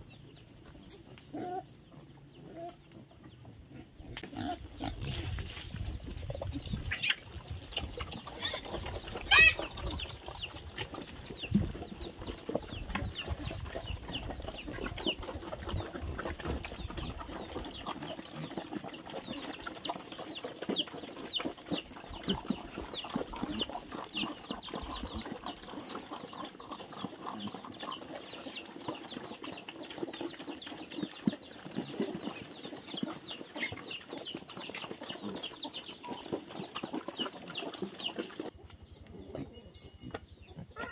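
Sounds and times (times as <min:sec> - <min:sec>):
chickens clucking: 0:00.0 - 0:40.9
chicks peeping: 0:00.0 - 0:40.9
pigs eating at a trough: 0:00.0 - 0:40.9.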